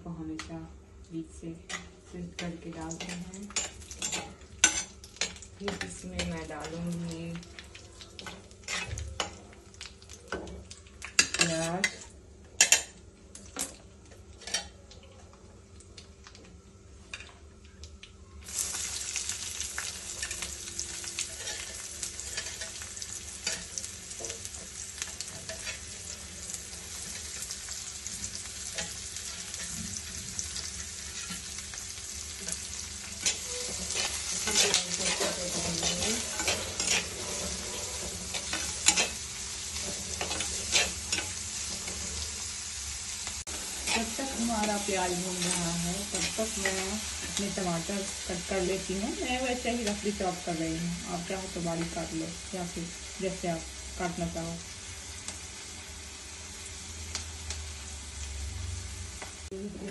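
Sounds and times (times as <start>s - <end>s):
onions sizzling in oil: 1.3s - 14.8s, 18.4s - 59.9s
metal ladle clinking and scraping: 33.2s - 39.2s.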